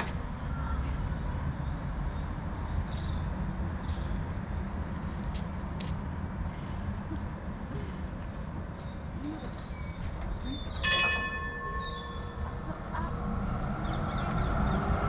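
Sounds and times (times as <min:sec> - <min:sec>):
steady low rumble: 0:00.0 - 0:15.0
tram warning bell ringing: 0:10.3 - 0:13.5.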